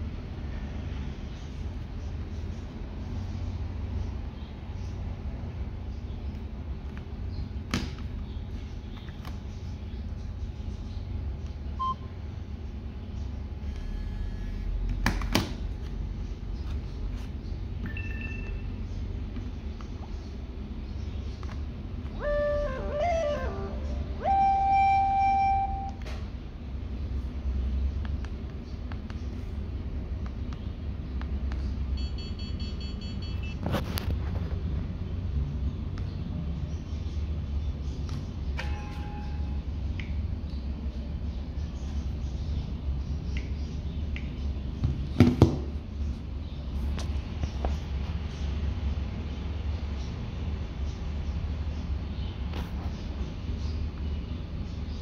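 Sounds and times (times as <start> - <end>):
low hum: 15.7 - 31.2
phone key beeps: 32.0 - 33.6.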